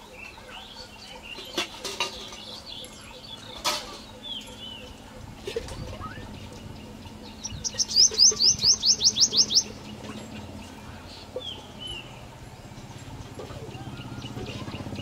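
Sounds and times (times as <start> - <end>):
bird singing sharp rising notes: 6.0 - 12.3.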